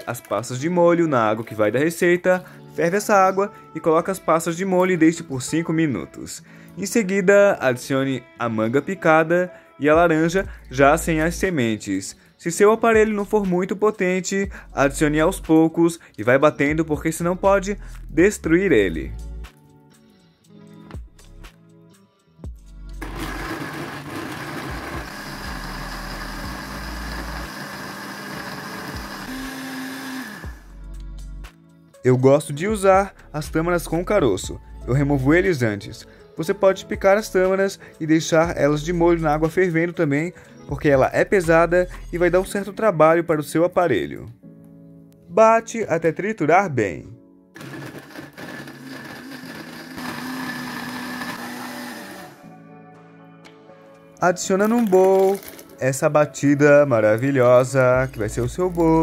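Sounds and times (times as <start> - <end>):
electric blender running: 23.0 - 30.7, 47.6 - 52.5, 54.7 - 55.7.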